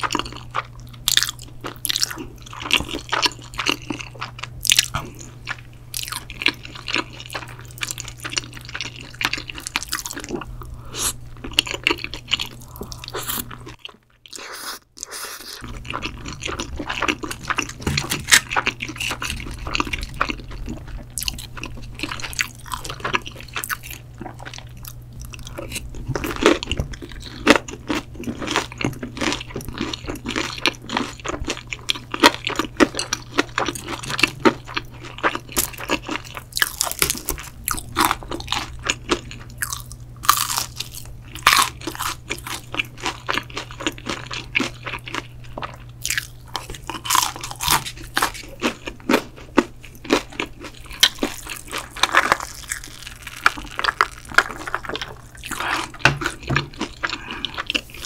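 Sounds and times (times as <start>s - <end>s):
steady low hum: 0.0s - 58.0s
wet chewing: 0.0s - 58.0s
crunchy bites of fried chicken: 24.6s - 58.0s.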